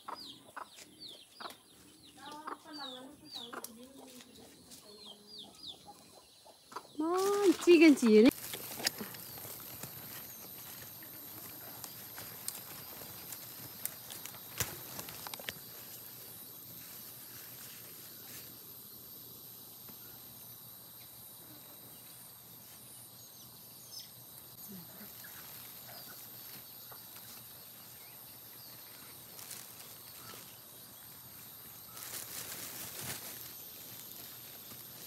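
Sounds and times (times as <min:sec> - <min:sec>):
vines clicking: 0:07.0 - 0:16.0
faint hiss: 0:07.0 - 0:35.0.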